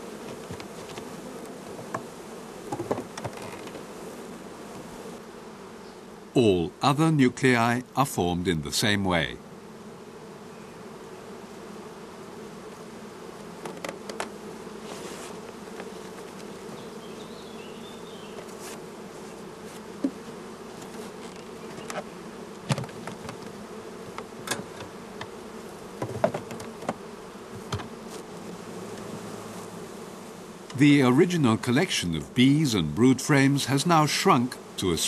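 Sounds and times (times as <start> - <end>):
knocks of wooden hive boxes: 0.0 - 5.1, 12.6 - 29.5
bees buzzing: 0.0 - 35.0.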